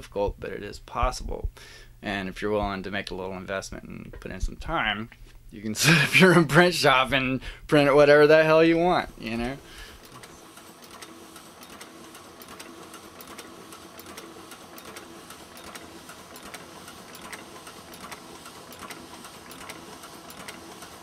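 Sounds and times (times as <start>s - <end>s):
printing press whirring: 8.0s - 21.0s.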